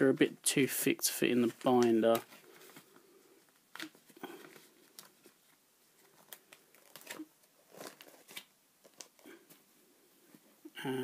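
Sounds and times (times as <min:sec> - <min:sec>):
plastic pages crinkling: 0:01.3 - 0:09.6.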